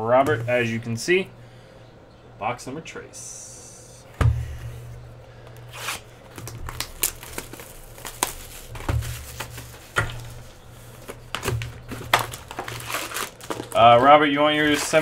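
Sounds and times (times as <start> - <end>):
cardboard box thump: 4.2 - 4.8
plastic wrap crinkling: 5.6 - 15.0.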